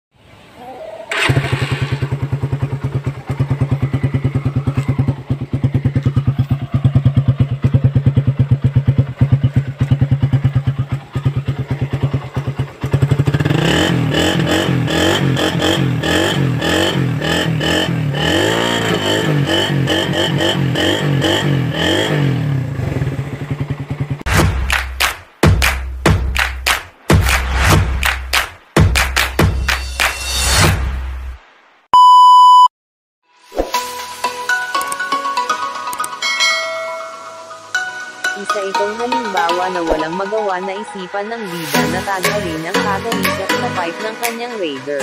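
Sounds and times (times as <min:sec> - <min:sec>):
motorcycle engine revving: 0:01.1 - 0:24.7.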